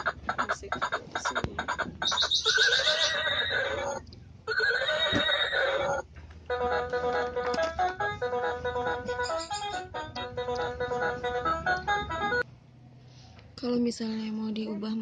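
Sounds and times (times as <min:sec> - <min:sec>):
recorded horse whinny: 0:02.3 - 0:06.0
simple electronic melody: 0:06.5 - 0:12.4.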